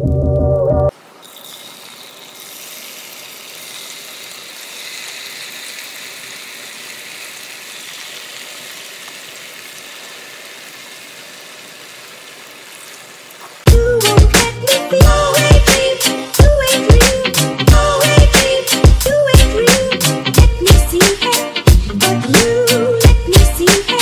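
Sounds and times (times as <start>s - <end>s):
chicken sizzling in hot oil: 1.0s - 13.7s.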